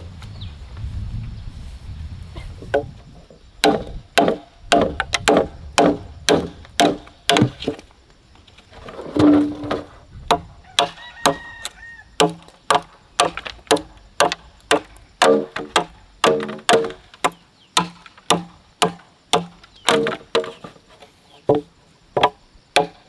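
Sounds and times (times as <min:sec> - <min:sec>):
chopping wood: 0:03.6 - 0:07.9, 0:09.2 - 0:11.5, 0:12.2 - 0:20.7, 0:21.5 - 0:23.0.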